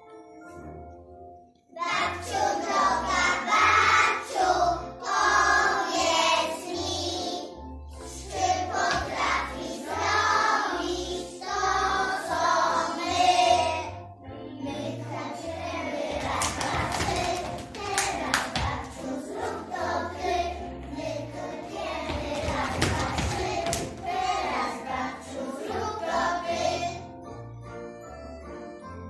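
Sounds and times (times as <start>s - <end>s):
instrumental backing music: 0.0s - 29.0s
children singing: 1.8s - 14.0s, 14.6s - 27.1s.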